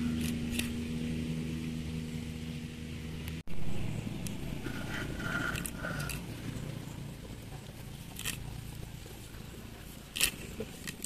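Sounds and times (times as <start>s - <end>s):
low steady rumble: 0.0s - 11.0s
herb stems being snipped: 5.5s - 6.3s, 7.6s - 9.1s, 9.9s - 11.0s.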